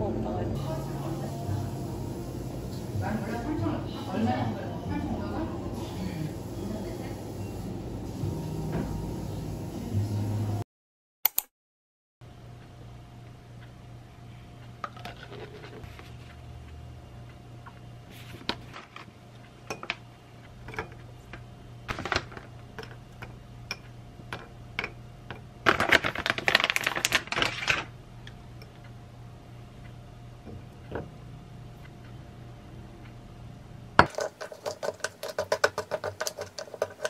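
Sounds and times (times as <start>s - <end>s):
spoon tapping glass bowl: 34.0s - 37.0s.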